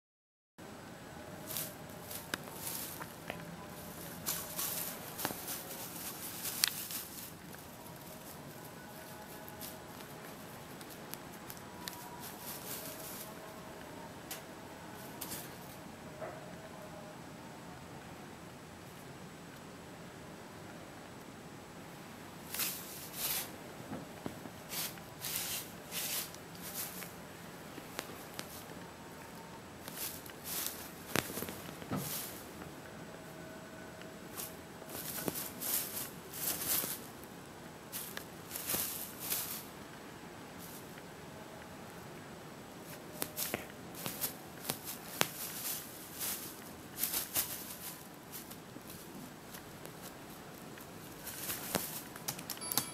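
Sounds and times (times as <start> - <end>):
kitten rustling tinsel: 1.4 - 13.7, 14.9 - 15.8, 22.4 - 23.6, 24.6 - 27.2, 29.8 - 32.6, 34.3 - 37.3, 37.9 - 39.8, 40.5 - 41.0, 42.8 - 52.3.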